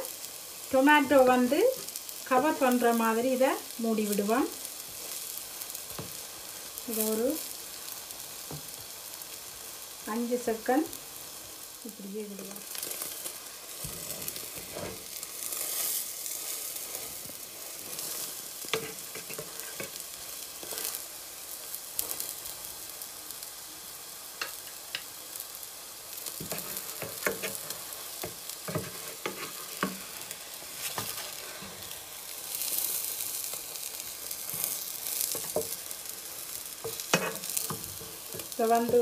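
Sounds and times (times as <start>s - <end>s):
bread sizzling in a pan: 0.0s - 39.0s
utensils tapping a pan: 18.6s - 20.0s, 26.4s - 30.1s, 35.3s - 35.8s, 36.8s - 39.0s.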